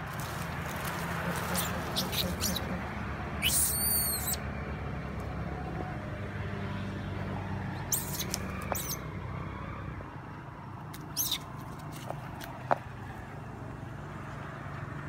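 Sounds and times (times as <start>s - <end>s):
monkeys squealing: 1.4s - 2.8s, 3.4s - 4.4s, 7.8s - 9.0s, 11.1s - 11.5s.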